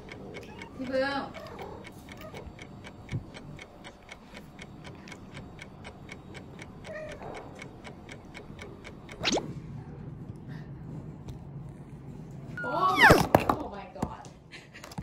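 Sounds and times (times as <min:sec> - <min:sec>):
clock-like ticking: 0:00.0 - 0:09.4.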